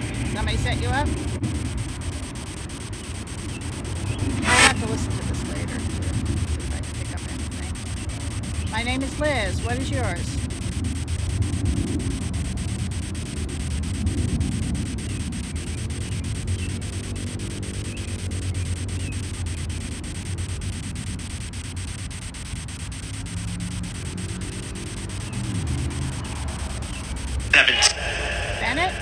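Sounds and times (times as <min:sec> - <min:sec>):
white noise static hiss: 0:00.0 - 0:29.0
heavy low rumble: 0:27.6 - 0:29.0.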